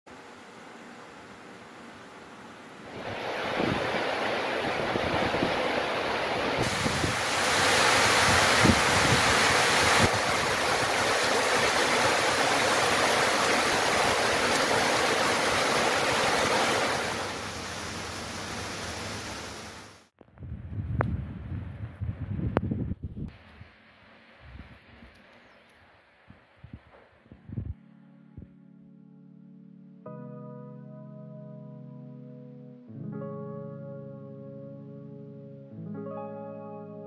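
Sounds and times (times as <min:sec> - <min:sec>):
heavy rain pouring: 0:02.9 - 0:20.1.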